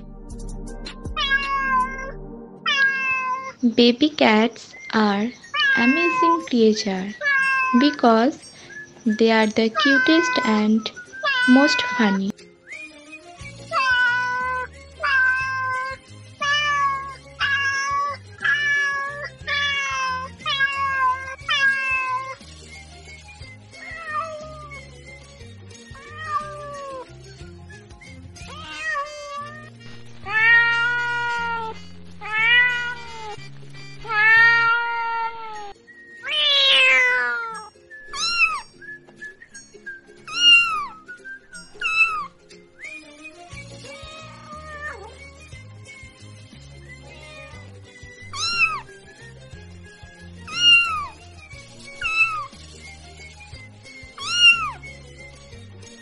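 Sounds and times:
cat high-pitched cries: 1.1s - 3.6s, 5.4s - 8.0s, 9.7s - 12.4s, 13.4s - 22.4s, 23.4s - 25.1s, 25.8s - 27.5s, 28.4s - 38.8s, 40.3s - 41.1s, 41.7s - 46.1s, 46.8s - 49.3s, 49.9s - 52.6s, 54.0s - 55.0s
cats meowing: 1.1s - 3.6s, 5.3s - 8.1s, 9.6s - 12.4s, 13.4s - 22.4s, 23.3s - 27.5s, 28.4s - 38.8s, 40.3s - 41.1s, 41.8s - 52.6s, 54.0s - 55.3s.

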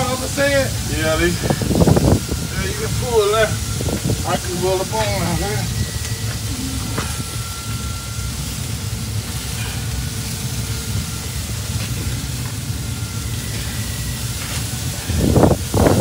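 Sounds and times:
meat sizzling on a grate: 0.0s - 16.0s
wind rumble on microphone: 0.8s - 7.5s, 14.7s - 16.0s.

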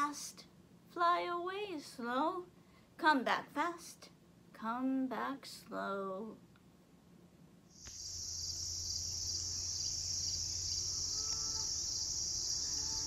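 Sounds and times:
low steady hum: 0.0s - 13.0s
crickets chirping: 7.7s - 13.0s.

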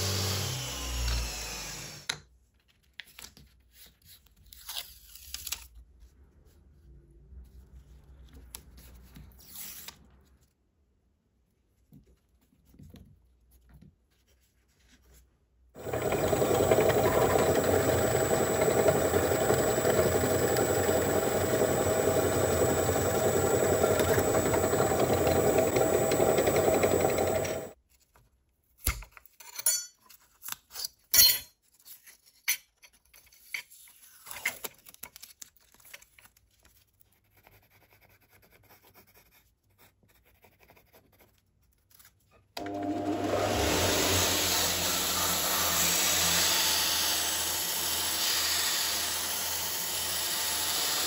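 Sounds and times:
drill press drilling wood: 0.0s - 2.1s, 15.8s - 27.8s, 42.6s - 51.0s
pencil scratching: 37.2s - 41.8s.

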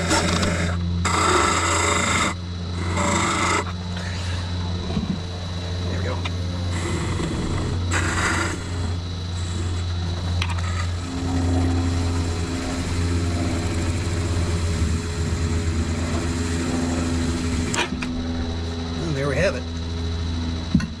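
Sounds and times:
wood lathe motor humming: 0.0s - 21.0s
turning tool scraping wood: 6.7s - 11.1s.

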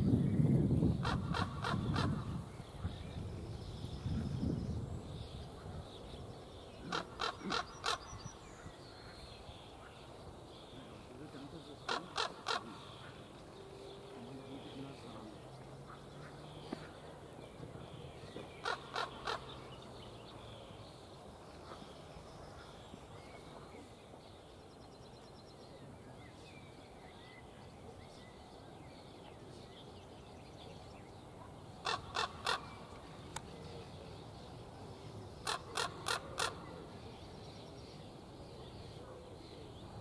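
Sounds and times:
raven croaking: 1.0s - 2.4s, 6.8s - 8.4s, 11.8s - 13.4s, 18.6s - 19.7s, 31.8s - 32.9s, 35.4s - 36.7s.

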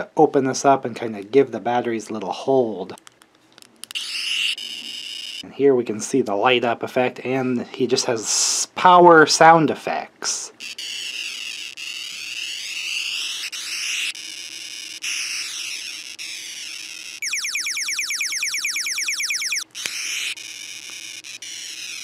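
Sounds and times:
toy electronic sound effects: 10.6s - 22.0s.

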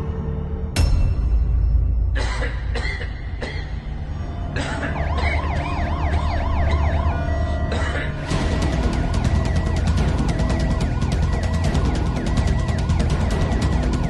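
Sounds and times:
low dark background music: 0.0s - 14.0s
warbling emergency siren: 4.8s - 7.7s, 9.0s - 14.0s
fast ticking beat: 8.6s - 14.0s.

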